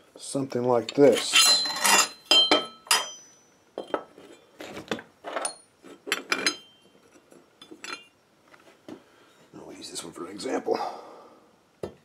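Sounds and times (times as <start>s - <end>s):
metal pieces clinking on workbench: 1.2s - 4.4s, 5.3s - 8.2s.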